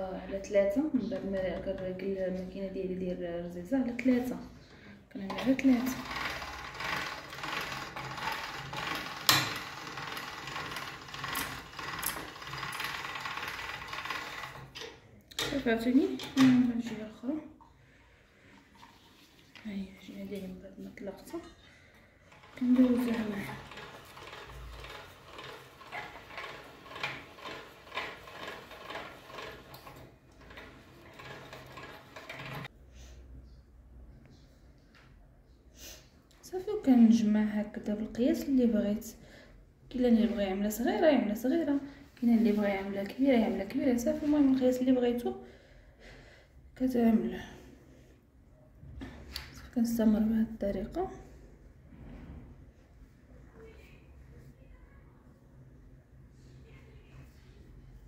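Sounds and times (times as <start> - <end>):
pasta machine rattling and clicking: 5.3 - 17.0, 22.2 - 32.7.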